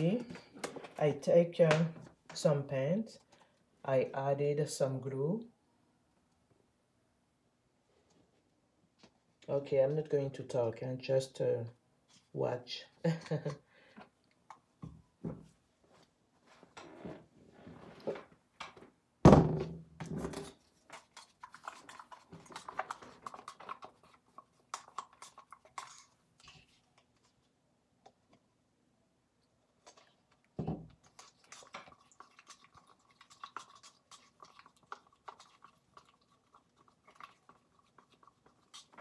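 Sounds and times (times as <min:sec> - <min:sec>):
loud thunks of plastic cups: 0:19.3 - 0:20.4.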